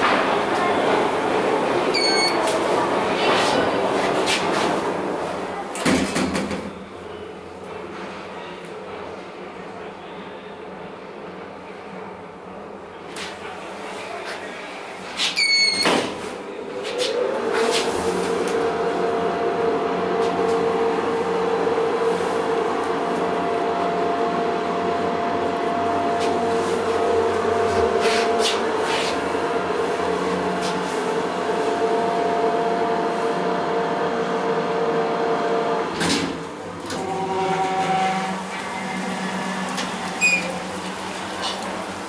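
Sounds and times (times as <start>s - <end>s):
elevator drive humming: 0.0s - 4.2s, 28.7s - 42.0s.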